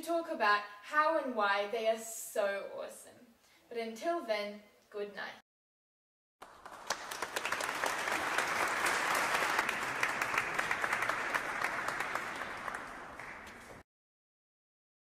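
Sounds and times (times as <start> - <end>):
audience applauding: 6.4 - 13.8.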